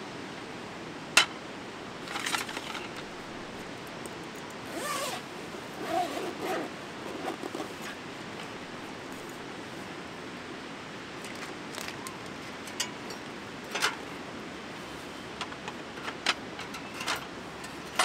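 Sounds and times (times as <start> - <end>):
zipper being pulled open: 4.6 - 8.0.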